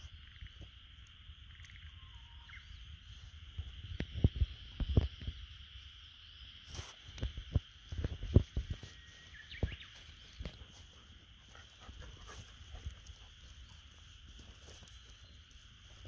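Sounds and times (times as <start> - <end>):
faint chirp: 0.0 - 3.7, 8.6 - 10.7
high hiss: 0.0 - 16.0.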